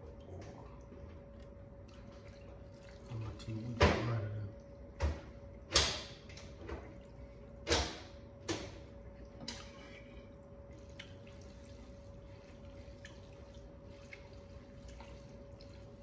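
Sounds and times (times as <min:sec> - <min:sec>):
wet noodles squelching: 0:00.0 - 0:03.8, 0:08.8 - 0:16.0.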